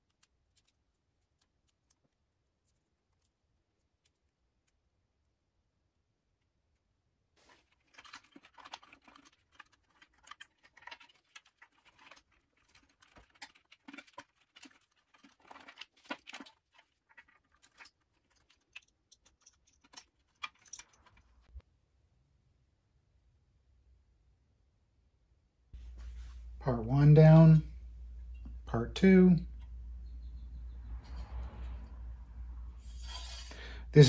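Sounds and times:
hands rustling wires: 0.0s - 21.6s.

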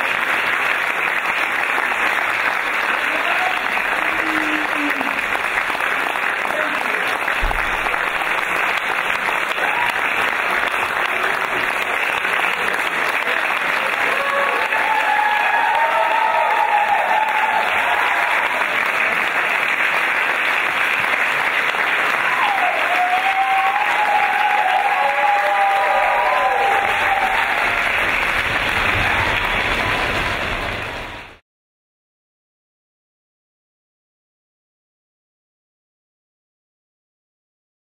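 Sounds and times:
audience applauding: 0.0s - 31.4s
audience calls and cheers: 0.0s - 31.4s.

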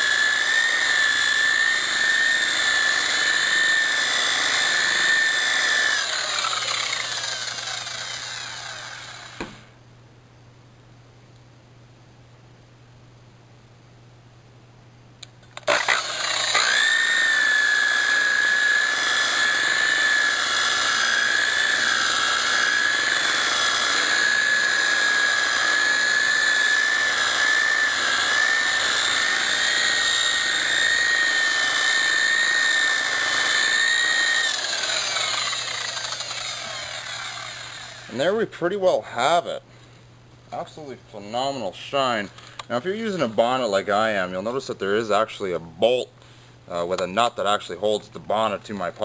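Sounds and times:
electric polisher whining: 0.0s - 9.6s, 15.6s - 38.2s.

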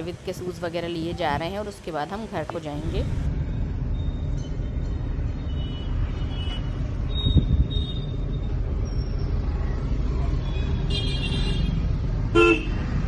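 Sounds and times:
car engine and road rumble: 2.2s - 13.0s.

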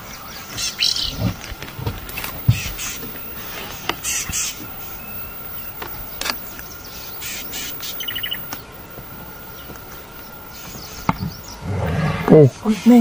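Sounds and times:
harsh bird calls: 0.0s - 13.0s
sharp clicks: 2.0s - 10.3s.

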